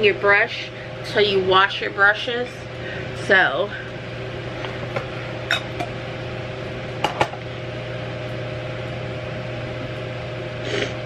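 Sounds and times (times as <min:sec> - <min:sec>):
electric fan motor hum: 0:00.0 - 0:11.0.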